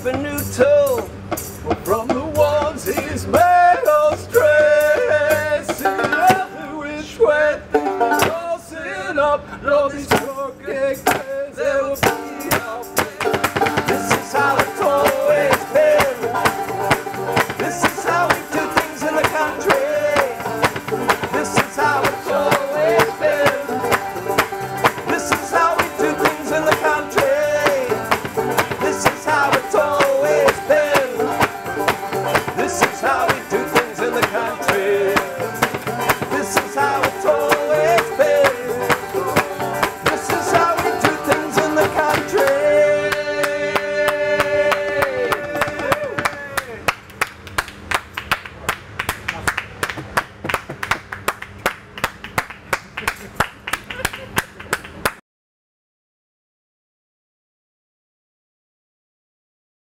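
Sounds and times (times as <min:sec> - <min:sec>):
banjos picking: 0:00.0 - 0:06.8, 0:07.6 - 0:08.5, 0:10.1 - 0:46.2
upright bass: 0:00.0 - 0:08.6, 0:10.1 - 0:46.8
hand claps: 0:37.5 - 0:55.2.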